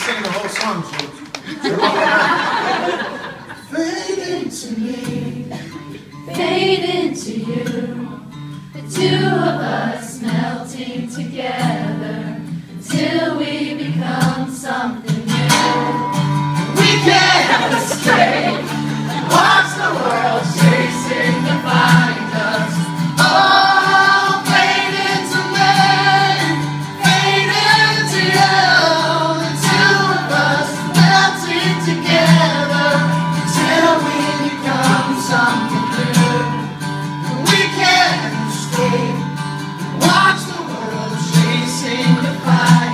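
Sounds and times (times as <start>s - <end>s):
man singing: 3.7s - 5.9s, 15.3s - 42.9s
acoustic guitar strumming: 3.8s - 42.9s.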